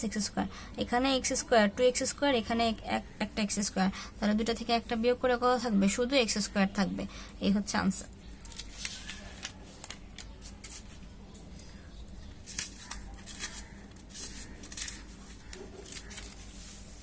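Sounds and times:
paper rustling on a table: 0:08.4 - 0:11.1, 0:12.4 - 0:17.0.

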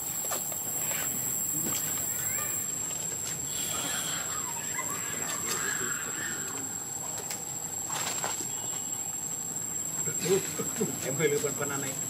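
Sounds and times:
faint animal squeaks: 0:02.0 - 0:02.7.

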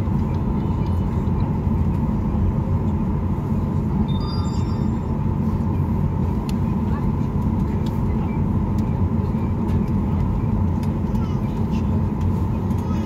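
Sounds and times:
aircraft cabin low rumble: 0:00.0 - 0:13.0
steady high tone: 0:04.0 - 0:05.3.

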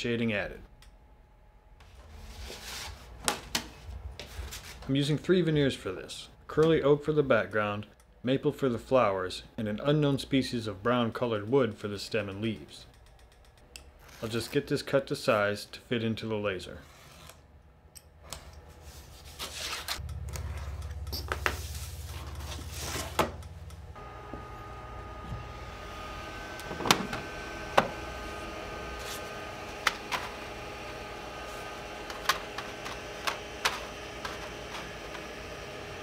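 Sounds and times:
machine hum with faint whine: 0:16.9 - 0:36.0.

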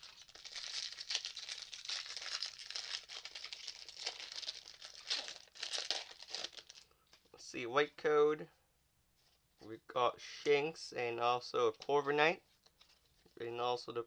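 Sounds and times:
foil wrapper crinkling and tearing: 0:00.0 - 0:06.9.

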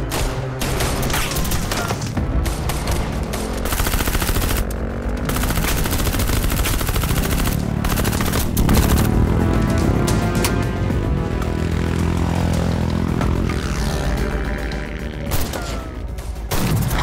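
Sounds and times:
rapid gunshots: 0:00.0 - 0:09.3, 0:16.5 - 0:17.0
automatic gunfire burst: 0:03.6 - 0:04.7, 0:05.3 - 0:09.1.

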